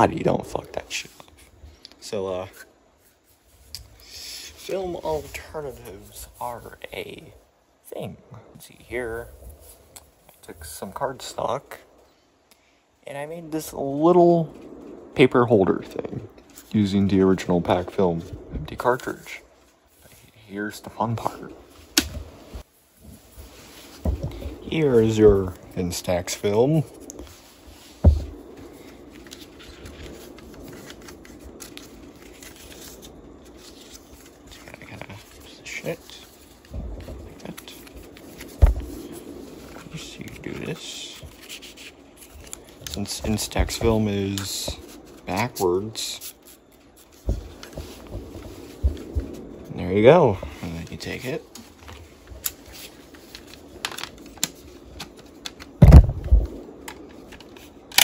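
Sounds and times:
faint rustling and small clicks: 21.2s - 49.8s, 50.4s - 58.0s
low thump: 24.0s - 24.6s, 28.0s - 28.4s, 55.8s - 56.5s.

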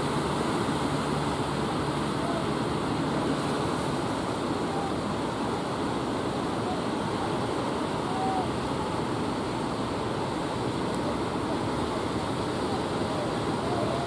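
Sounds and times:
boat engine drone: 0.0s - 14.0s
surf and breaking waves: 0.0s - 14.0s.

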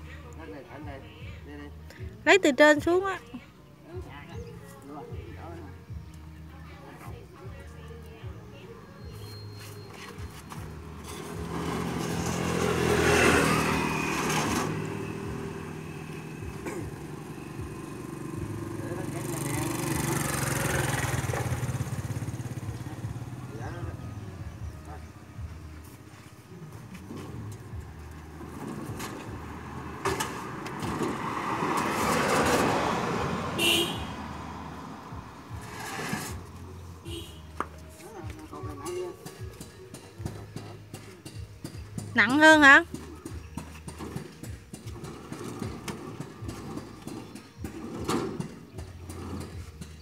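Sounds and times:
motor vehicle passing: 9.2s - 39.1s, 41.9s - 50.0s.

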